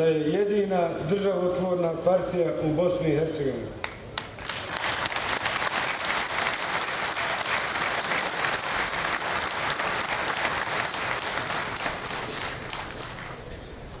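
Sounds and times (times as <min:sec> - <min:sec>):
crowd applauding: 0:04.2 - 0:13.5.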